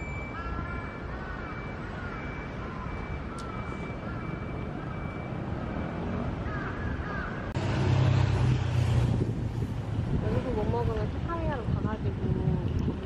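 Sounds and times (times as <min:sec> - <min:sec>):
city street hum: 0:00.0 - 0:13.0
road traffic engine rumble: 0:00.0 - 0:13.0
crow cawing: 0:06.4 - 0:07.5.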